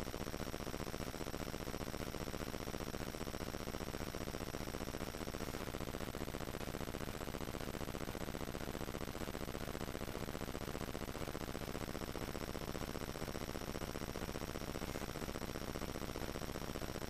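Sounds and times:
electronic hiss and buzz: 0.0s - 17.0s
faint high whine: 11.2s - 17.0s.

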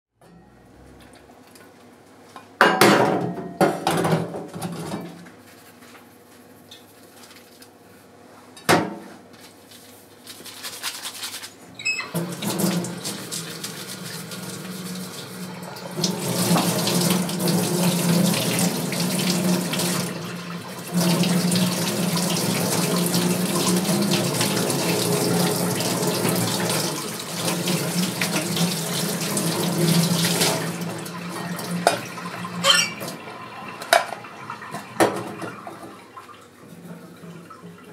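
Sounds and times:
tap water splashing into sink: 12.2s - 37.9s
bowls or utensils knocking: 32.6s - 33.0s.

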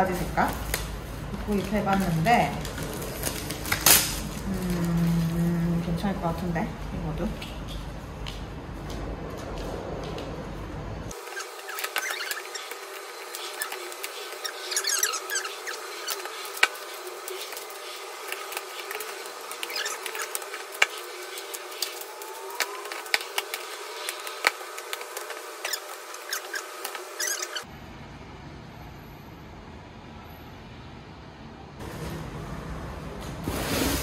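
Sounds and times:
plastic squeaks and rattles: 11.1s - 27.7s.

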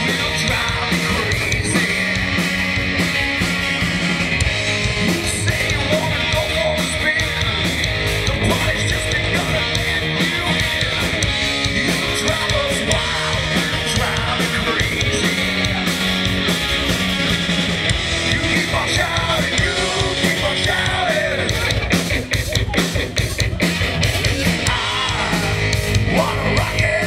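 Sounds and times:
person singing: 0.0s - 2.7s, 4.9s - 16.1s, 18.2s - 23.4s, 24.4s - 27.0s
drums keeping a steady beat: 0.0s - 27.0s
electric guitar: 0.0s - 27.0s.

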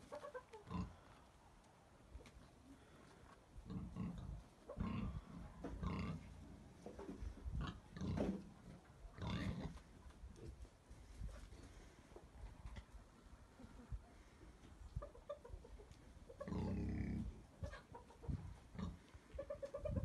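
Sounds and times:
farm animal low calls: 3.6s - 10.0s, 15.0s - 20.0s.

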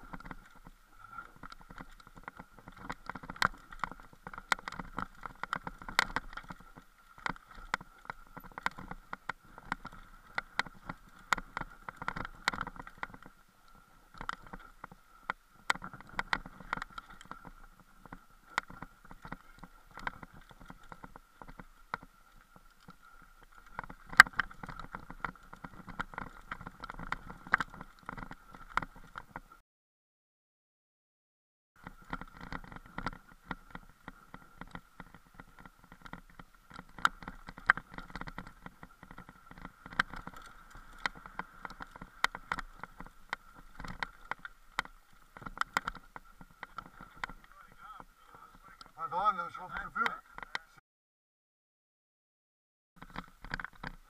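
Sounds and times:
bike clattering over stones: 32.0s - 50.2s.

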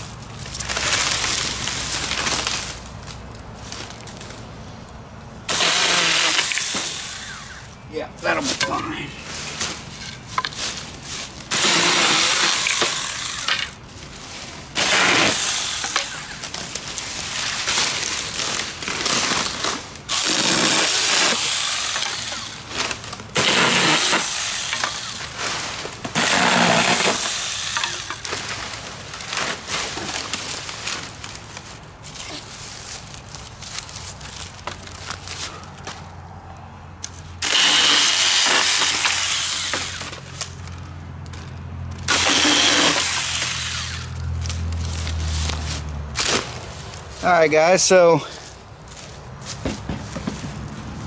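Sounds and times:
hand saw cutting wood: 5.5s - 7.7s, 11.5s - 13.8s, 14.8s - 16.5s, 19.0s - 28.4s, 37.4s - 40.2s, 42.1s - 44.2s.

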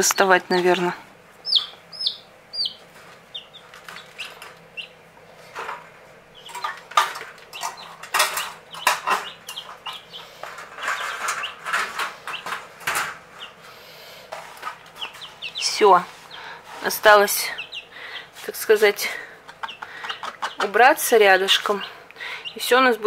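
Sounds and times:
chicks peeping: 0.0s - 23.0s
wire cage clattering: 6.4s - 13.2s.

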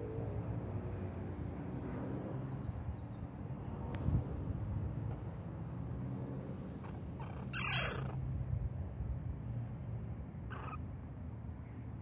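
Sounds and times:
shrill animal cry: 6.8s - 8.2s, 10.5s - 10.8s
low hum-like animal calling: 6.8s - 8.3s, 10.5s - 10.9s.

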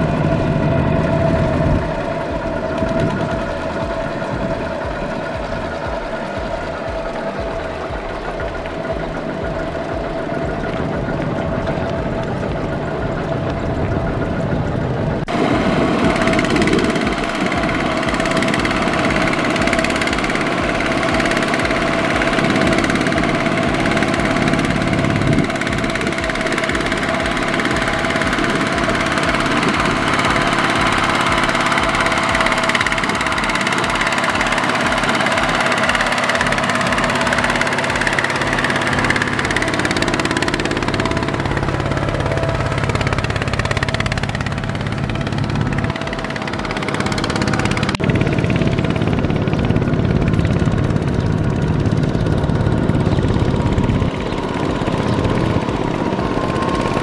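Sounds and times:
diesel tiller engine thumping: 0.0s - 57.0s.

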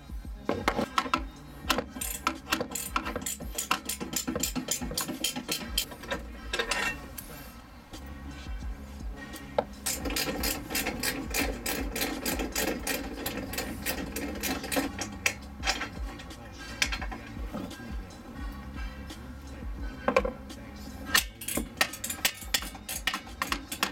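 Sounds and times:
socket ratchet clicking: 0.8s - 6.7s, 9.8s - 16.0s, 21.1s - 23.9s.

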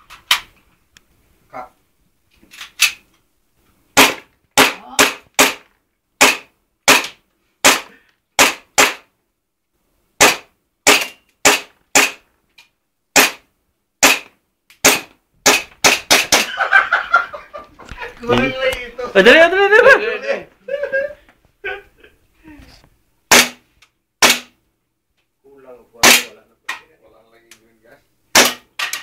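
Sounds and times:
airsoft gun shots: 4.0s - 9.1s, 10.2s - 12.2s, 13.1s - 13.4s, 14.0s - 16.5s, 23.3s - 23.6s, 24.2s - 24.6s, 26.0s - 26.3s, 28.3s - 28.7s.

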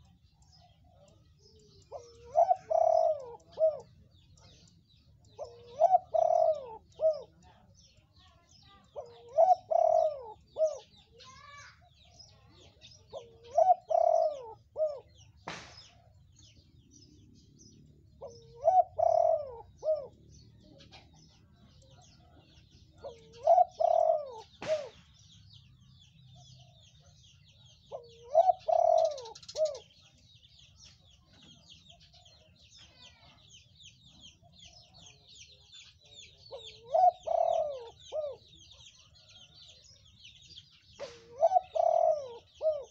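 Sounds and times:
dove cooing: 0.0s - 11.6s, 12.5s - 15.6s, 18.0s - 25.1s, 26.4s - 30.1s, 36.0s - 39.6s, 41.0s - 42.9s
small birds twittering: 0.0s - 42.9s.

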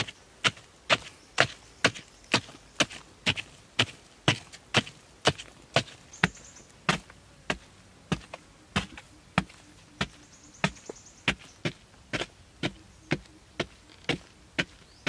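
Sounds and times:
digging tool striking hard soil: 0.0s - 15.0s.

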